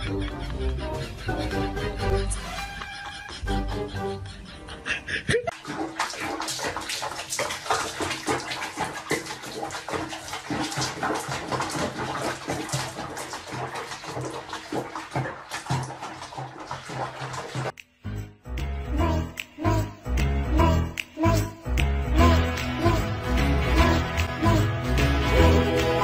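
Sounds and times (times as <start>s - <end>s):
water splashing in a basin: 5.5s - 17.8s.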